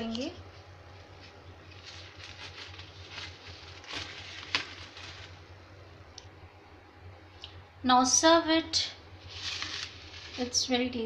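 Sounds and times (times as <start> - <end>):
paper tissue rustling: 0.0 - 5.8, 9.2 - 11.0
low steady hum: 0.0 - 11.0.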